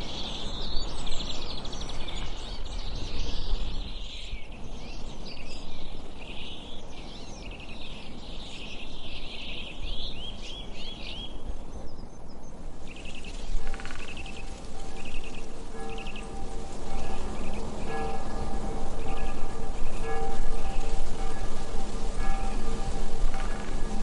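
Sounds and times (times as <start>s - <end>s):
birds chirping and trilling: 0.0s - 24.0s
steady low rumble: 12.6s - 24.0s.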